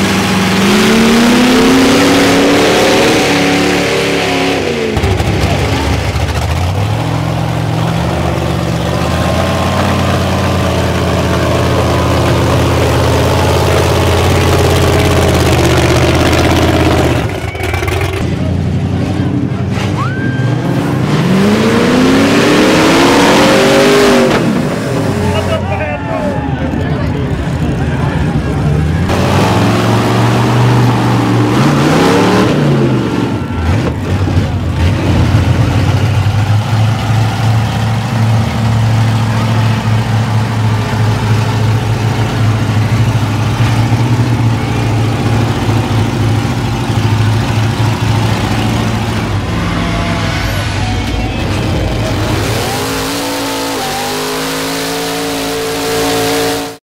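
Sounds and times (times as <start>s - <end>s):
truck engines revving: 0.0s - 56.8s.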